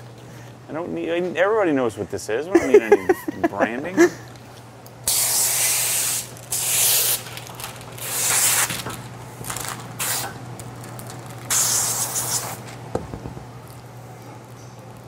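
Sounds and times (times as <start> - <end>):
steady low hum: 0.0 - 15.0
spray wand hissing: 5.1 - 7.2, 8.0 - 8.7, 10.0 - 10.3, 11.5 - 12.6.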